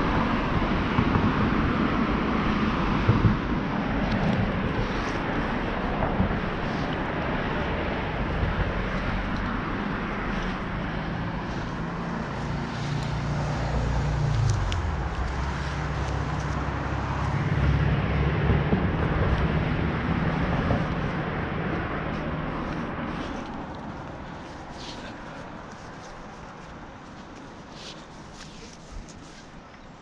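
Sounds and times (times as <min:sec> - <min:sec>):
engine running at low speed: 0:00.0 - 0:27.6
steady rushing noise: 0:00.0 - 0:29.7.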